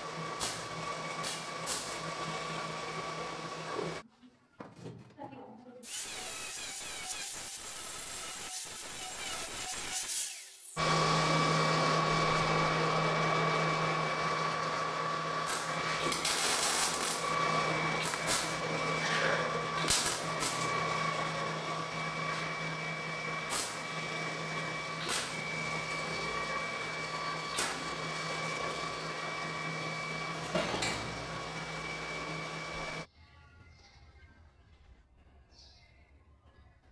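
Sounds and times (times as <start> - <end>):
arc welding crackling hiss: 0.4 - 2.0, 5.8 - 10.8, 15.4 - 17.3, 18.0 - 18.6, 19.8 - 20.7, 23.5 - 23.8
angle grinder grinding steel: 5.8 - 33.1
welding pops: 15.5 - 17.2, 18.0 - 18.6, 19.8 - 20.7, 27.6 - 27.9.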